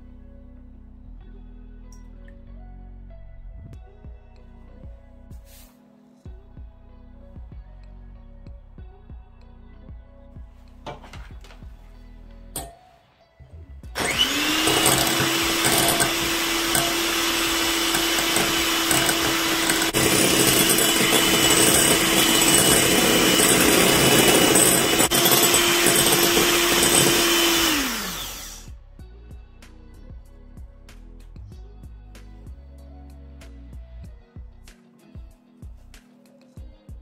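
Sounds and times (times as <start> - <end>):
electric hand mixer whisking: 14.0 - 28.7.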